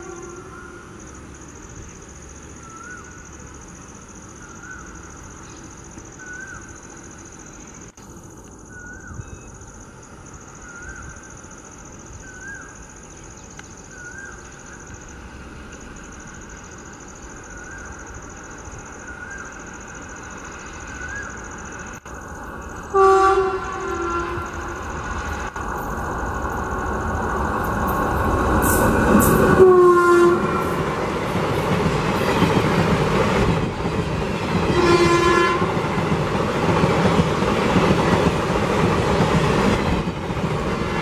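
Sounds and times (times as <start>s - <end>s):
cuckoo calling: 6.2s - 6.8s.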